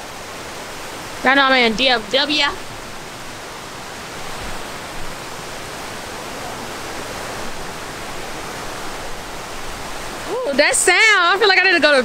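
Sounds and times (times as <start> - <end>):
fountains splashing: 0.0 - 12.0.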